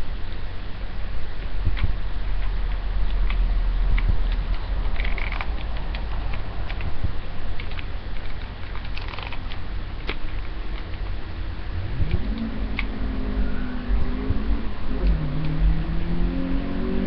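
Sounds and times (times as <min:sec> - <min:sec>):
hair brushing crackles and rustles: 0:00.0 - 0:13.0
steady low rumble: 0:00.0 - 0:17.0
low pitched rising tone: 0:11.2 - 0:17.0.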